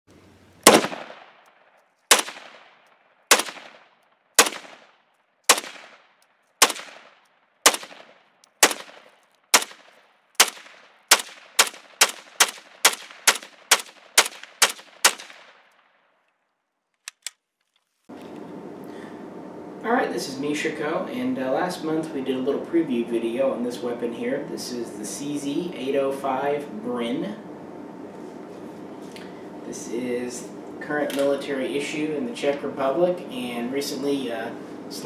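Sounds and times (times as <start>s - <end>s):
pistol gunshots echoing: 0.6s - 1.4s, 2.1s - 15.7s.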